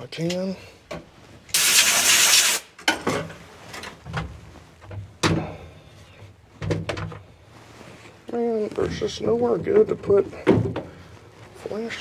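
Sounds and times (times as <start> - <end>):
compressed air blast from hose: 1.5 - 2.7
light knocks and clunks: 6.6 - 7.3, 9.6 - 11.0.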